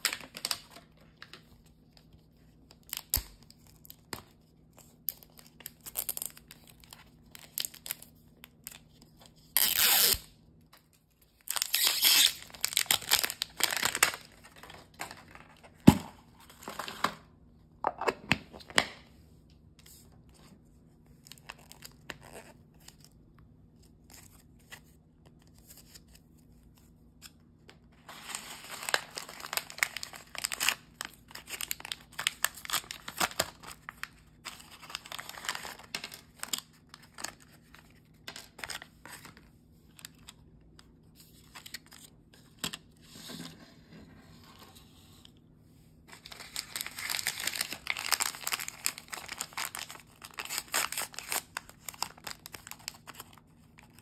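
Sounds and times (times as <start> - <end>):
plastic shrink wrap tearing: 9.4 - 10.3, 11.4 - 14.6, 28.1 - 37.4, 46.1 - 54.0
wrappers crinkling: 11.4 - 15.4, 28.1 - 38.8, 46.1 - 54.0.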